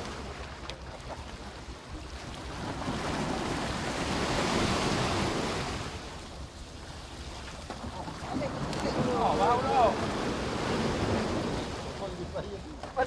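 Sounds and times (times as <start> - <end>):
wind buffeting microphone: 0.0 - 13.0
water splashing against rocks: 7.2 - 11.8.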